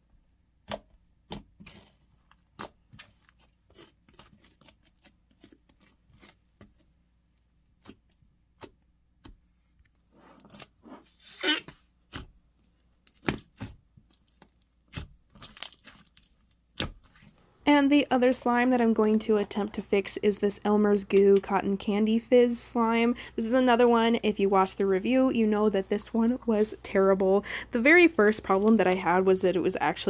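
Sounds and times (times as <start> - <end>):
crunchy slime crackling: 13.1 - 17.2.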